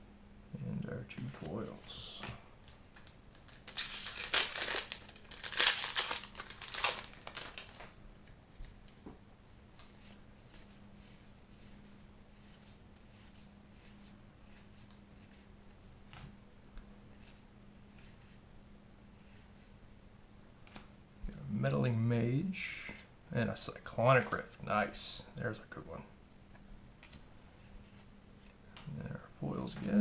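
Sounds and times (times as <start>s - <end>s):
foil wrapper crinkling and tearing: 3.0s - 8.0s.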